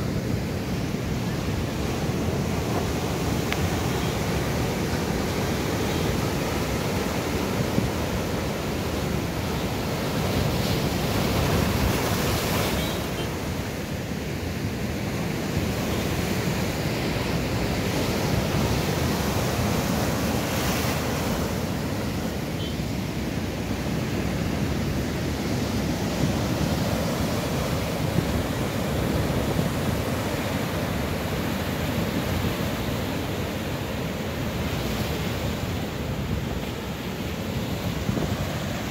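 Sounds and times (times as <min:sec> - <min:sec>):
heavy surf breaking on rocks: 0:00.0 - 0:13.7.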